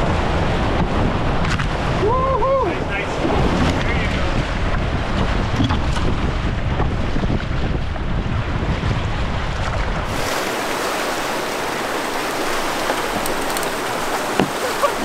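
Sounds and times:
wind buffeting on microphone: 0.0s - 15.0s
whitewater rapids rushing: 10.1s - 15.0s.

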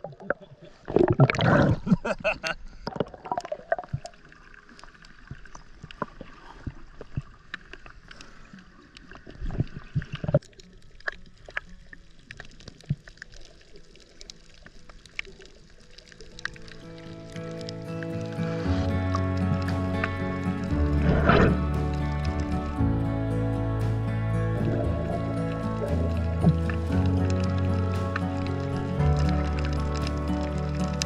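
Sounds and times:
muffled underwater bubbling: 0.0s - 2.1s, 16.1s - 22.8s, 24.3s - 31.0s
low gurgle: 0.0s - 31.0s
water splashing: 0.0s - 31.0s
small clicks and crackles: 2.9s - 21.6s.

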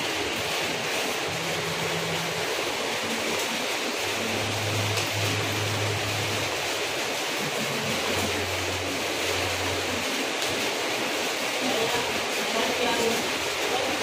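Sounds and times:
room noise hiss: 0.0s - 14.0s
low hum: 4.0s - 10.6s.

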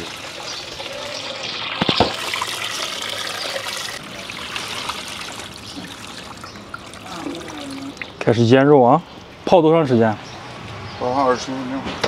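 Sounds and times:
brine splashing into metal basin: 0.0s - 8.2s
sharp knocks: 1.8s - 2.2s.

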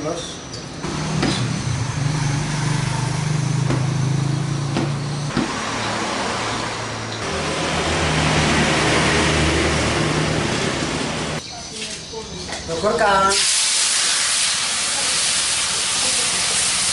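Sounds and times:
engine-like hum: 0.3s - 11.4s
hiss: 13.3s - 16.9s.

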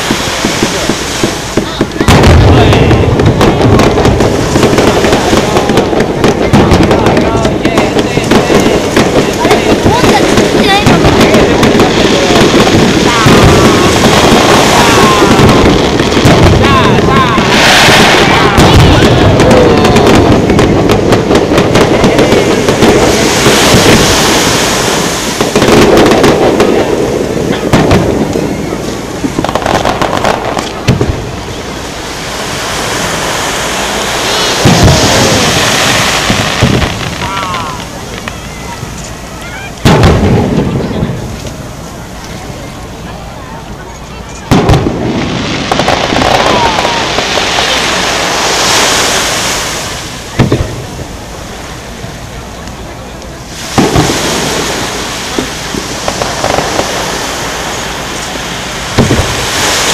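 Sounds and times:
fireworks booming: 0.0s - 59.9s
steady rushing noise: 0.0s - 59.9s
firework whistle: 8.3s - 42.8s
firework shell bang: 59.0s - 59.4s.

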